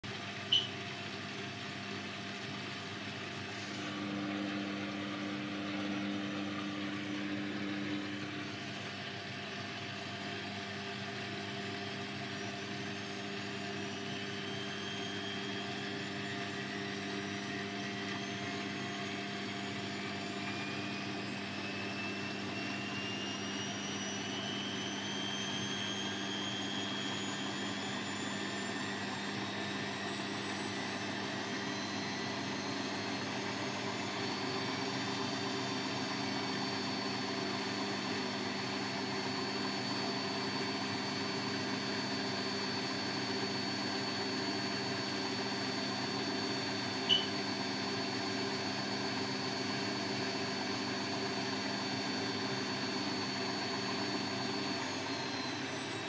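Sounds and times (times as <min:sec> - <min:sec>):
motor whine rising in pitch: 0:00.0 - 0:56.0
washing machine drum humming: 0:00.1 - 0:03.2, 0:03.9 - 0:14.5, 0:47.0 - 0:47.4.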